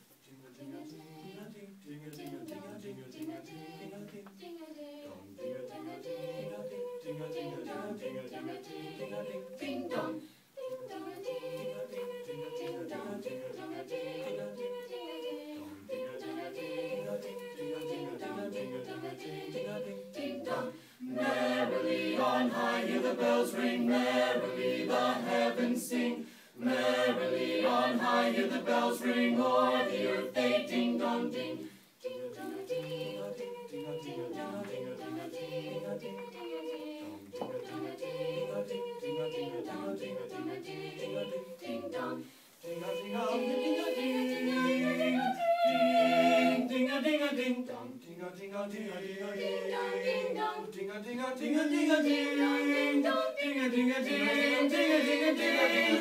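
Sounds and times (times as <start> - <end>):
mixed choir singing a cappella: 0.0 - 56.0.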